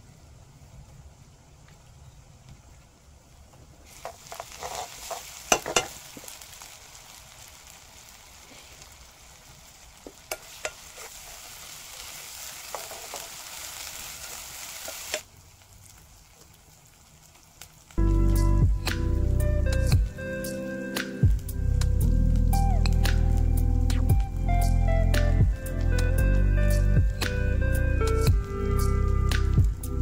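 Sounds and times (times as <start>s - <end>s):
onions sizzling in oil: 3.8s - 30.0s
metal ladle knocking on pan: 5.5s - 5.9s.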